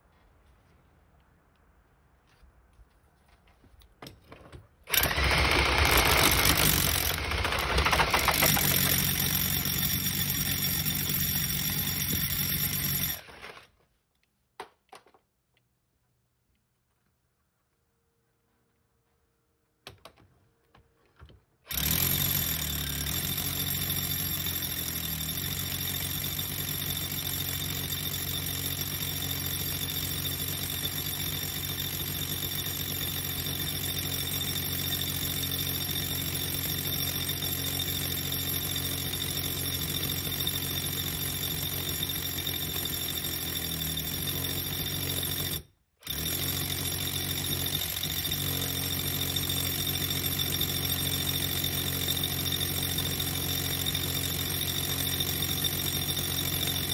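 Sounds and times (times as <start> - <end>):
power drill boring into brick: 4.9 - 13.7, 21.7 - 56.9.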